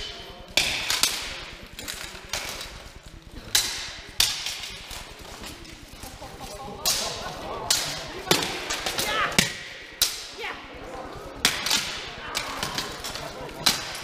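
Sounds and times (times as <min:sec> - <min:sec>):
swords clashing on metal armour: 0:00.0 - 0:02.8, 0:03.4 - 0:05.4, 0:11.5 - 0:14.0.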